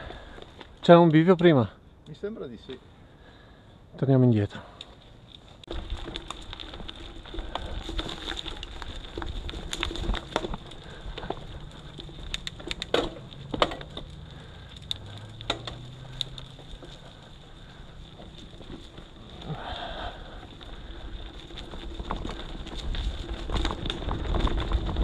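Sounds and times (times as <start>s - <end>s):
bike clicks and knocks on trail: 0.0s - 2.1s, 4.6s - 25.0s
wind rumble on microphone: 19.2s - 25.0s.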